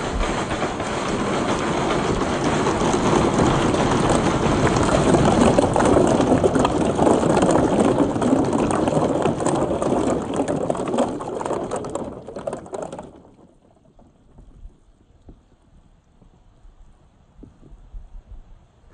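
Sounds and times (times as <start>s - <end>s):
balls clacking together: 0.0s - 14.7s
balls rolling down wooden chute: 0.0s - 15.5s
balls splashing into water: 3.0s - 14.5s.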